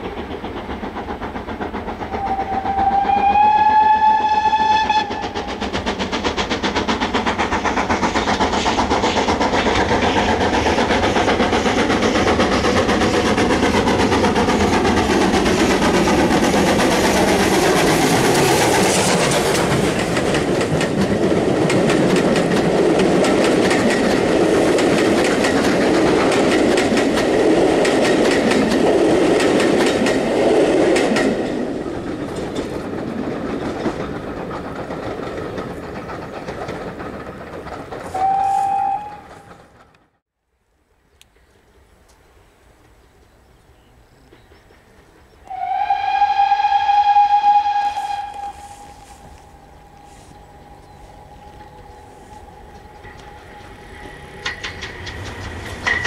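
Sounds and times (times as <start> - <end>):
train coaches rolling past: 0.0 - 40.2, 41.2 - 56.0
steam locomotive passing: 0.0 - 56.0
steam locomotive whistle: 2.1 - 5.6, 38.0 - 39.7, 45.4 - 54.5.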